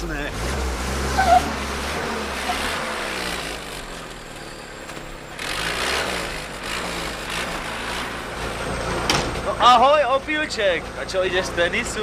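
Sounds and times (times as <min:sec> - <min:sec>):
jeep engine revving while driving: 0:00.0 - 0:04.2, 0:05.3 - 0:09.1.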